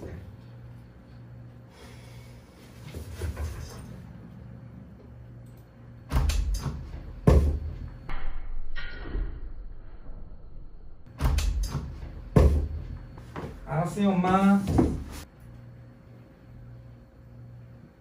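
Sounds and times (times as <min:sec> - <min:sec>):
heavy dull thumps and knocks: 0:12.3 - 0:13.6.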